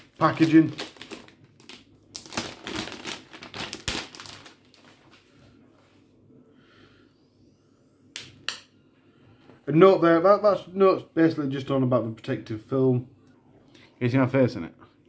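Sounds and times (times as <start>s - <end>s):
plastic sleeve crinkling: 0.0s - 5.3s.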